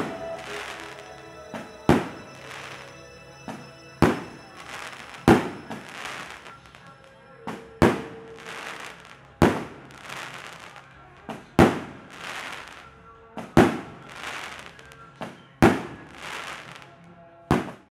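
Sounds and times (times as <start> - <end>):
crackling hiss of fireworks: 0.0 - 7.0, 7.8 - 11.0, 11.6 - 17.0
faint music: 0.0 - 17.8.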